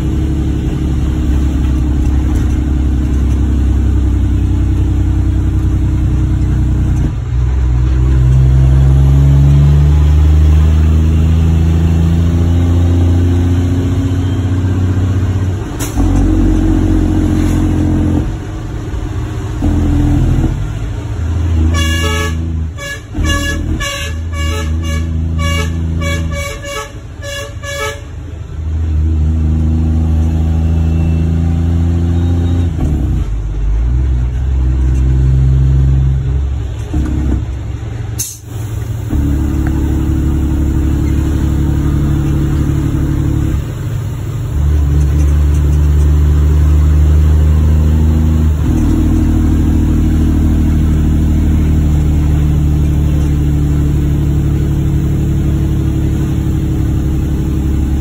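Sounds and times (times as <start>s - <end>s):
diesel truck engine running: 0.0s - 58.0s
truck horn short toots: 21.6s - 28.1s.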